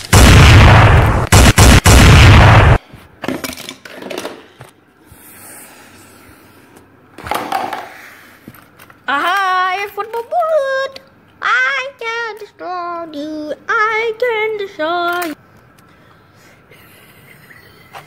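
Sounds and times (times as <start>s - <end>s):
loud explosion-like blast: 0.1s - 2.8s.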